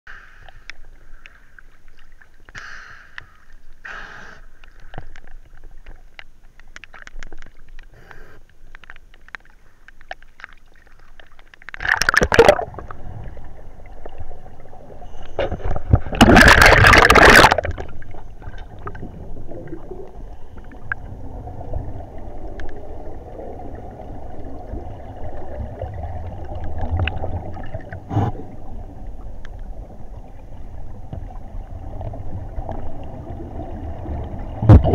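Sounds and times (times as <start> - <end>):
underwater gurgling bubbles: 8.8 - 34.9
rushes of bubbles: 10.4 - 34.9.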